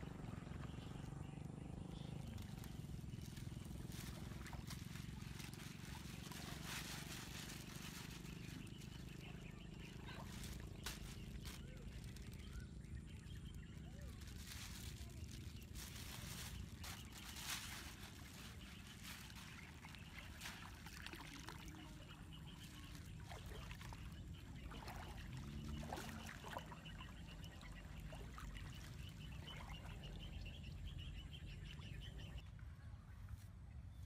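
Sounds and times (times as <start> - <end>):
shallow water splashing: 0.0 - 32.4
plastic bag rustling: 2.2 - 12.4, 14.0 - 20.6.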